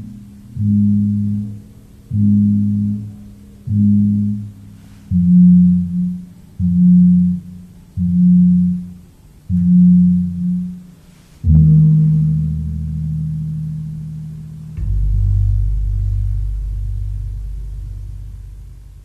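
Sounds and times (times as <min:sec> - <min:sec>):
damped gong strokes: 0:11.2 - 0:19.0.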